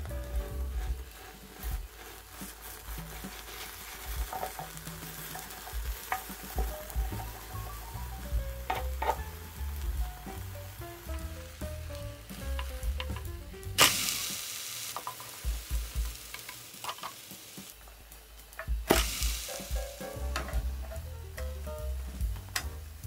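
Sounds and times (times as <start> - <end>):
light background music: 0.0 - 23.0
pancakes sizzling in oil: 0.0 - 23.0.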